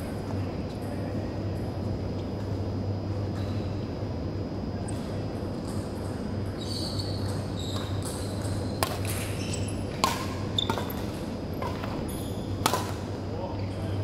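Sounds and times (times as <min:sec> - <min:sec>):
steady low hum: 0:00.0 - 0:14.0
rackets striking shuttlecock: 0:07.3 - 0:12.0, 0:12.6 - 0:13.1.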